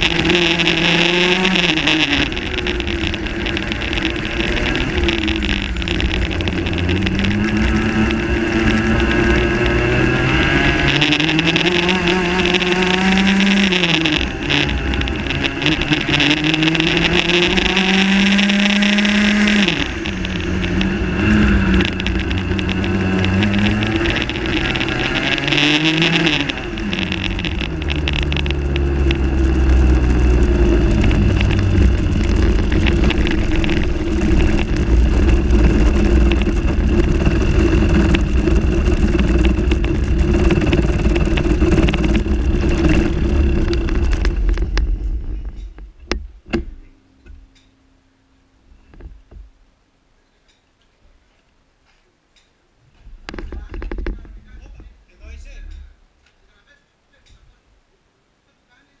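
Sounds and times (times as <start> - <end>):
kart engine revving: 0.0 - 45.9.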